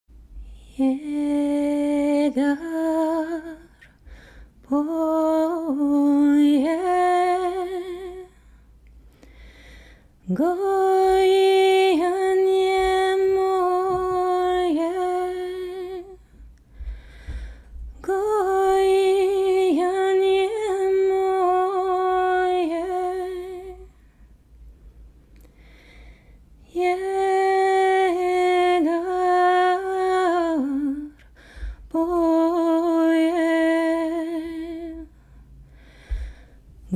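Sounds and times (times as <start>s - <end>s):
woman singing unaccompanied: 0.4s - 3.9s, 4.6s - 8.4s, 10.2s - 16.4s, 17.9s - 24.0s, 26.7s - 35.2s.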